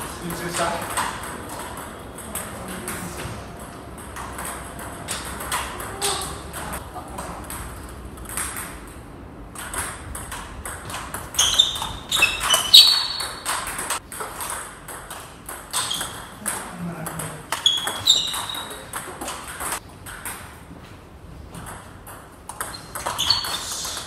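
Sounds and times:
table tennis ball clicking: 0.2 - 6.8, 7.4 - 20.5, 21.6 - 24.0
sneakers squeaking on wooden floor: 10.8 - 14.0, 15.7 - 16.5, 17.5 - 19.8, 22.5 - 24.0.

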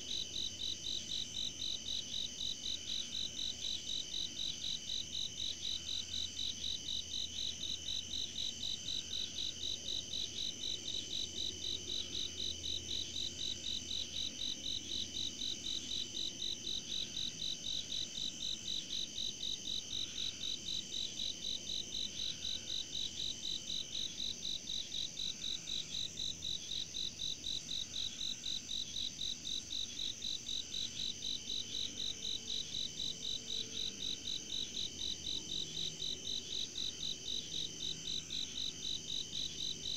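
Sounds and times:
pulsing cricket chirp: 0.0 - 39.9.

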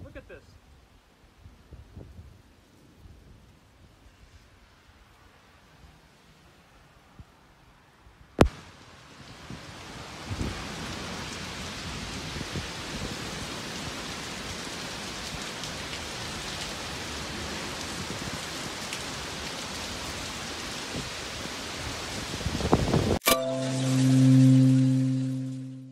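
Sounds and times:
heavy rain pouring: 8.4 - 25.7.

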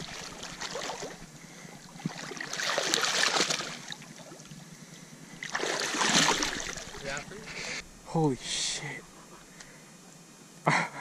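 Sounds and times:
creek water splashing: 0.0 - 8.1.

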